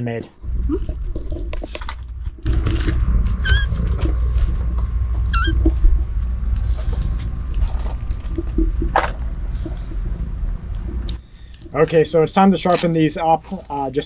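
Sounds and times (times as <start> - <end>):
steady low rumble: 0.4 - 14.0
kitten squeaking: 3.4 - 3.7, 5.3 - 5.6.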